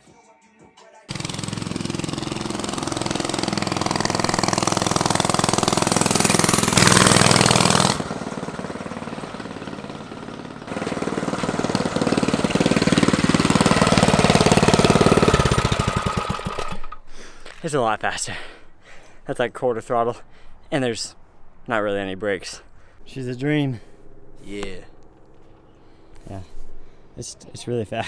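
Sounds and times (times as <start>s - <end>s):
unmuffled small engine running: 1.1s - 17.0s.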